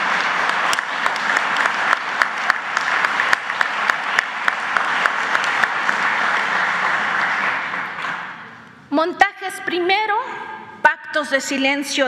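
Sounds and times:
audience applauding: 0:00.0 - 0:08.6.

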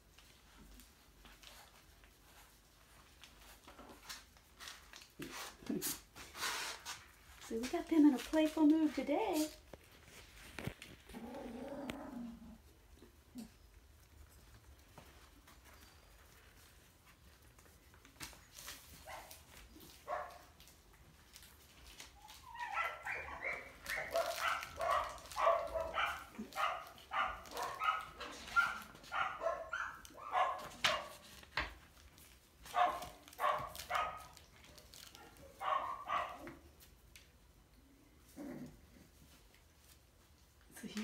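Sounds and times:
puppies yipping and barking: 0:22.2 - 0:31.0.

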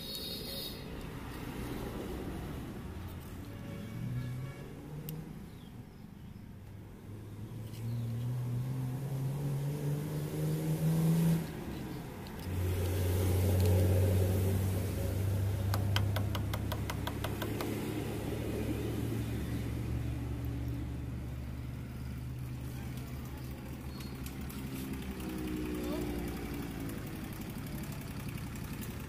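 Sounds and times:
motorcycle engine running: 0:15.5 - 0:18.5, 0:21.6 - 0:29.0
quick run of clicks: 0:15.7 - 0:17.9.

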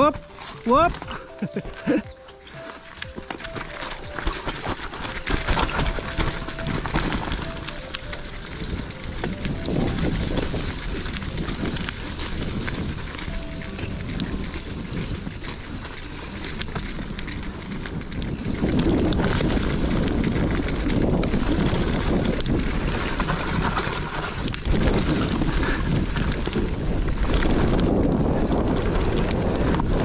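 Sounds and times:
bike rumbling and rattling on dirt: 0:00.0 - 0:30.0
wind rushing over microphone: 0:05.2 - 0:30.0.

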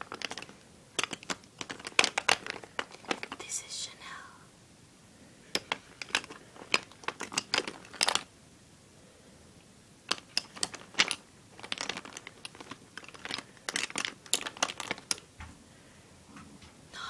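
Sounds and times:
makeup bottles clattering: 0:00.0 - 0:03.4, 0:05.5 - 0:08.3, 0:10.1 - 0:15.3.

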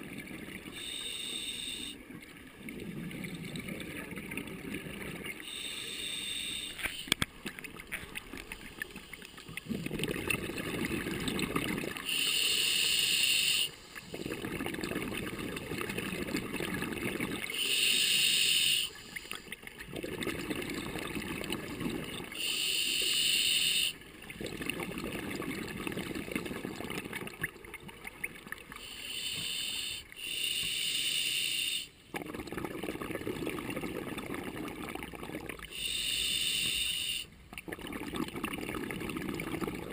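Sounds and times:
bubbling exhaust underwater: 0:00.0 - 0:39.9
regulator hissing inhale: 0:00.8 - 0:02.0, 0:05.4 - 0:07.2, 0:12.0 - 0:14.3, 0:17.6 - 0:19.5, 0:22.4 - 0:24.0, 0:28.8 - 0:32.0, 0:35.7 - 0:37.4.

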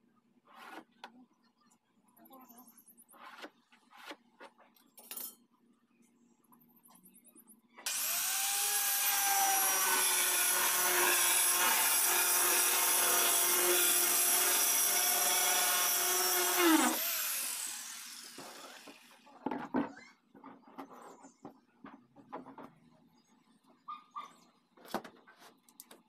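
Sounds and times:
angle grinder cutting plastic: 0:07.9 - 0:19.2
grinder motor winding down: 0:07.9 - 0:19.2.

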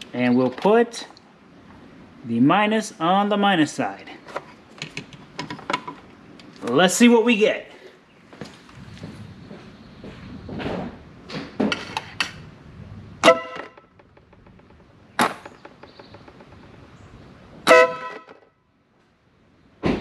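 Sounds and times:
sharp clicks and handling knocks: 0:00.0 - 0:01.2, 0:04.3 - 0:06.8
electric air horn blasts: 0:13.2 - 0:14.0, 0:17.6 - 0:18.4.

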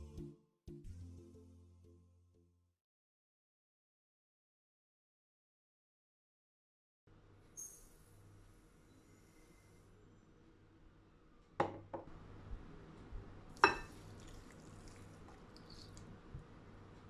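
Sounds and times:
cup knocking glass bowl: 0:11.6 - 0:12.1, 0:13.6 - 0:13.9
water pouring onto couscous: 0:13.8 - 0:16.3.

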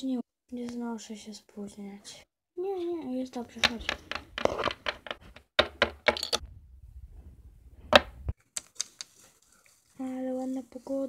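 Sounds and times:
plastic figurines clicking on wood: 0:03.5 - 0:06.4.

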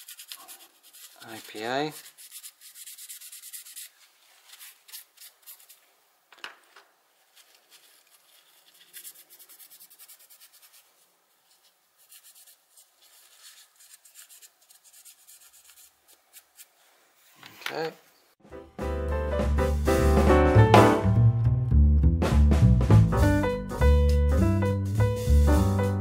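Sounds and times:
tissue rubbing on motor brush: 0:00.0 - 0:05.9, 0:07.1 - 0:17.4, 0:24.8 - 0:26.0.

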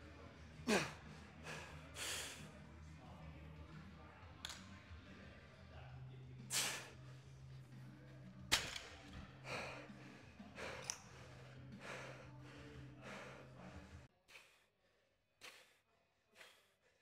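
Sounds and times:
person breathing forcefully: 0:14.3 - 0:17.0.

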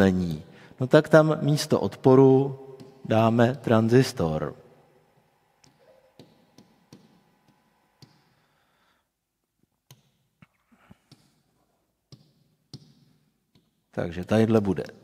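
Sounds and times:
pen tapping on glass screen: 0:12.1 - 0:13.7.

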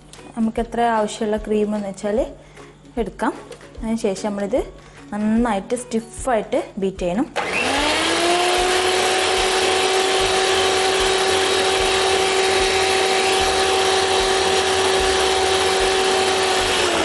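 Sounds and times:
electric hand mixer whine: 0:07.4 - 0:17.0.

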